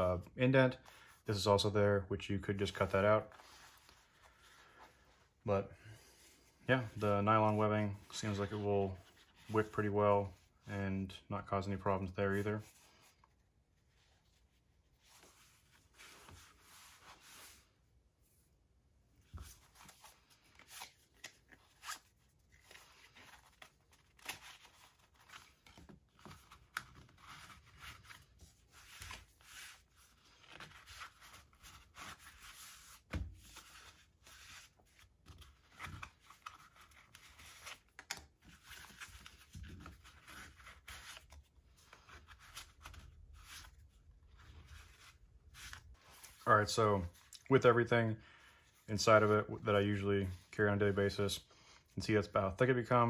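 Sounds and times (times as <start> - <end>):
wallet rustling and scraping: 2.7 - 5.4, 12.2 - 17.7, 19.2 - 47.4.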